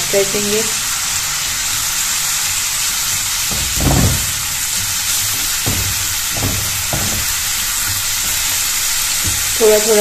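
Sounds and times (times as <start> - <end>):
onion sizzling in oil: 0.0 - 10.0
spatula knocking and scraping pan: 3.4 - 9.6.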